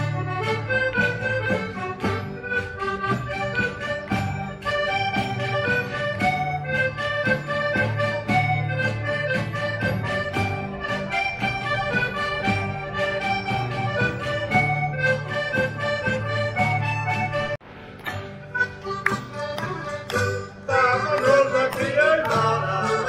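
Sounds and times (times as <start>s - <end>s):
held melody notes: 0.0s - 23.0s
plucked strings: 0.0s - 23.0s
strummed guitars: 0.0s - 23.0s.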